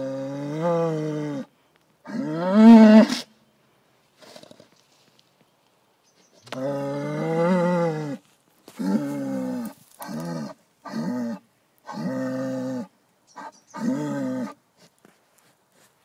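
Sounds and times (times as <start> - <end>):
bull mooing: 6.5 - 8.2, 8.8 - 12.9.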